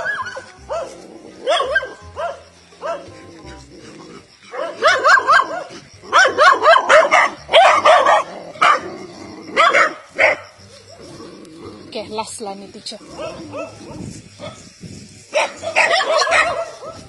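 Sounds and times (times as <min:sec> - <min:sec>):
dog barking: 0:00.0 - 0:03.1, 0:04.5 - 0:08.9, 0:09.5 - 0:10.5, 0:13.2 - 0:14.6, 0:15.3 - 0:17.0.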